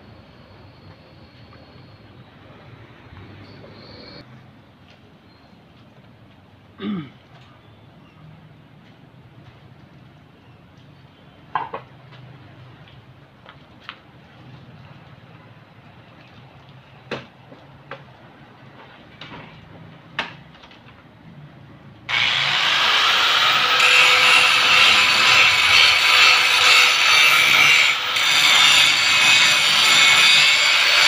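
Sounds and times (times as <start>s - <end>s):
angle grinder grinding metal: 22.1s - 31.0s.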